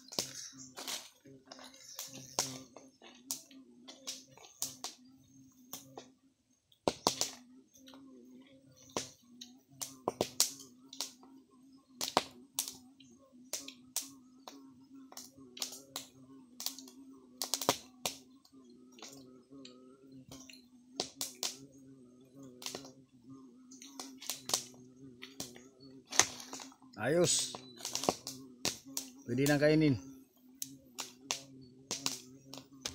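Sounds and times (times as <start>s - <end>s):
leaf fire crackling: 0.0s - 5.0s, 6.8s - 7.4s, 9.8s - 11.2s, 12.0s - 12.8s, 13.5s - 14.5s, 15.1s - 18.2s, 20.3s - 21.6s, 22.6s - 22.9s, 23.8s - 30.0s, 30.6s - 32.9s
fire snapping and popping: 6.8s - 7.4s, 9.8s - 11.2s, 12.0s - 12.8s, 13.5s - 14.1s, 15.1s - 18.2s, 21.0s - 21.6s, 22.6s - 22.9s, 23.8s - 26.7s, 27.4s - 29.6s, 31.0s - 32.9s.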